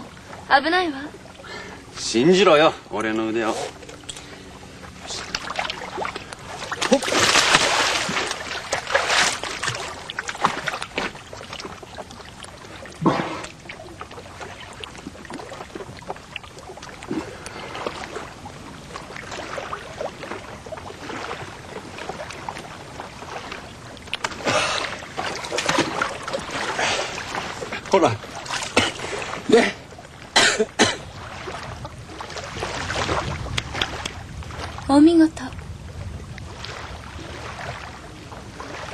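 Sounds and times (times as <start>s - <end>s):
seawater splashing in rocks: 5.0s - 34.9s.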